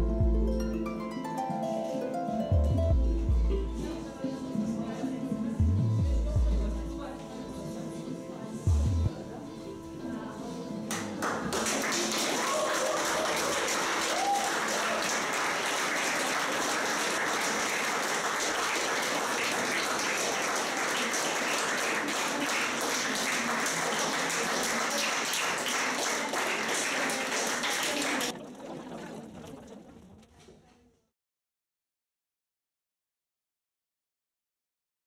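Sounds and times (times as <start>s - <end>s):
crowd applauding: 10.9s - 29.9s.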